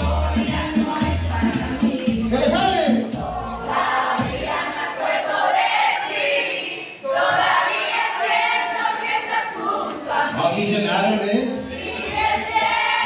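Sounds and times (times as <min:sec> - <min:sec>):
backing music bass: 0:00.0 - 0:04.5
crowd singing together: 0:00.0 - 0:13.0.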